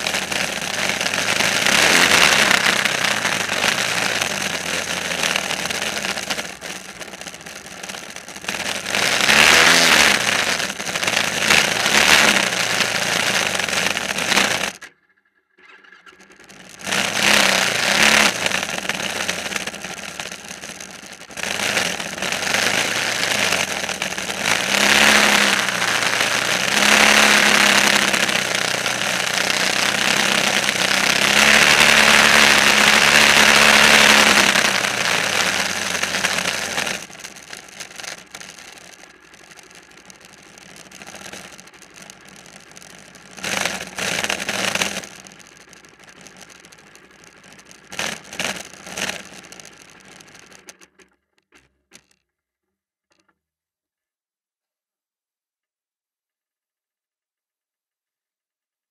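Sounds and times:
loud hiss: 0.0s - 14.8s, 21.4s - 38.5s
engine revving: 0.0s - 14.9s, 15.6s - 51.0s.

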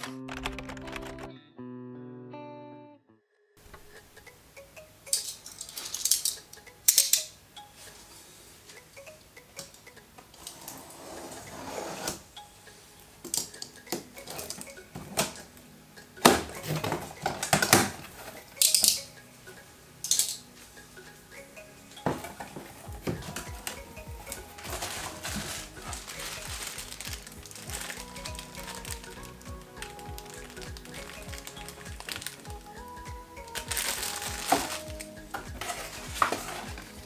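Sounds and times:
cardboard box handling noise: 24.6s - 29.1s, 33.5s - 37.0s.

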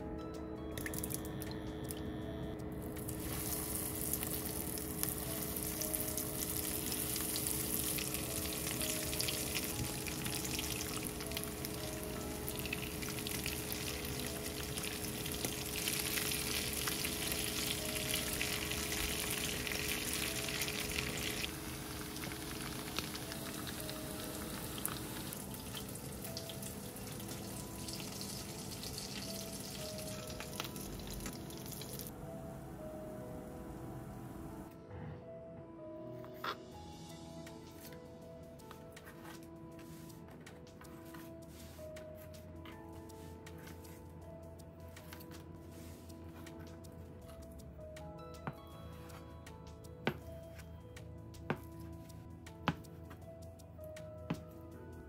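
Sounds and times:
food sizzling in frying oil: 3.1s - 32.1s.

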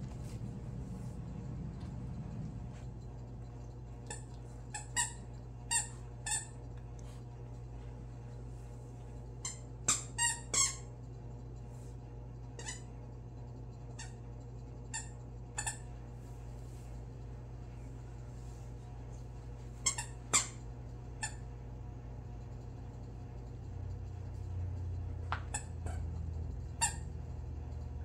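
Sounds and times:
squeaky dog toy squeaking: 9.5s - 10.9s, 19.8s - 20.6s, 26.8s - 27.1s.

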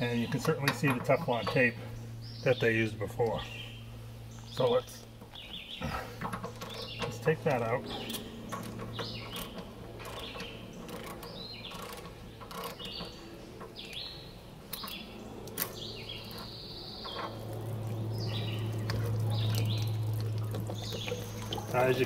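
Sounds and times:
birds chirping: 0.0s - 22.0s
low steady hum: 0.0s - 22.0s
socket wrench ratcheting: 8.1s - 13.2s.

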